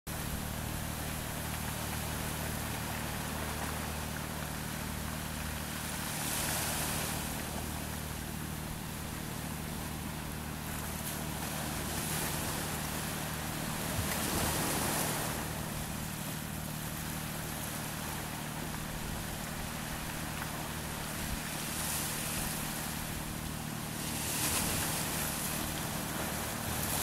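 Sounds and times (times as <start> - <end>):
steady low hum: 0.1 - 27.0
waves washing against rocks: 10.7 - 27.0.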